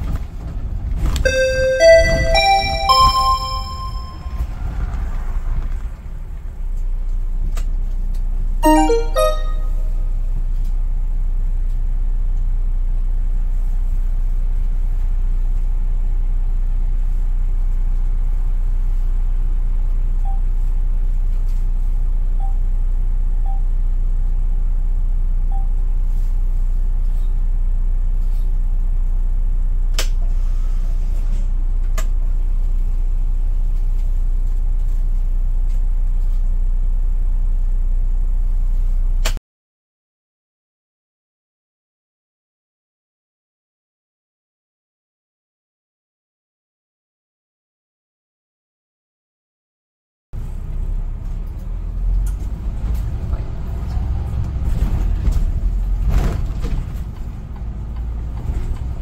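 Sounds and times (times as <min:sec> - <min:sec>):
bus engine idling: 0:00.0 - 0:38.9, 0:50.4 - 0:59.0
music: 0:01.3 - 0:04.4, 0:08.6 - 0:10.0
chime-like tones: 0:01.3 - 0:04.5, 0:08.6 - 0:10.0.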